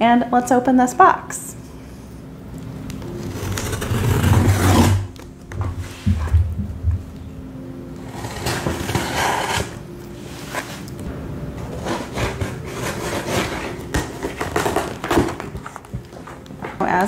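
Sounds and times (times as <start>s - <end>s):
cardboard scraping and rustling: 3.1s - 6.4s, 8.1s - 10.9s, 11.7s - 16.4s.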